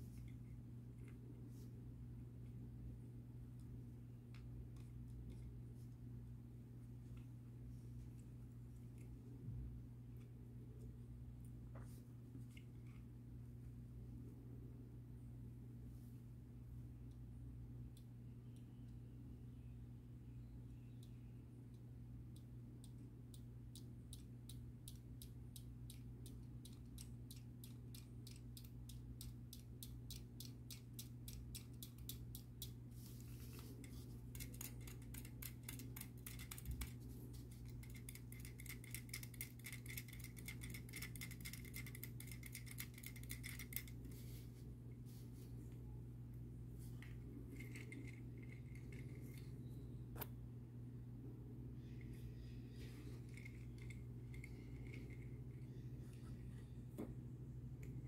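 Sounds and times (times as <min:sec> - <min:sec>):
low electrical hum: 0:00.0 - 0:58.0
toy mechanism clicking: 0:22.8 - 0:32.8, 0:34.3 - 0:37.0, 0:37.7 - 0:44.0
thin whirr: 0:51.2 - 0:58.0.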